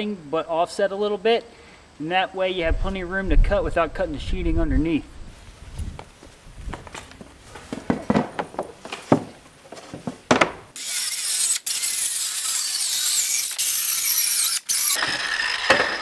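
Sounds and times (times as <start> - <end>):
knocks and clacks of handling: 6.7 - 10.6
circular saw cutting board: 10.7 - 16.0.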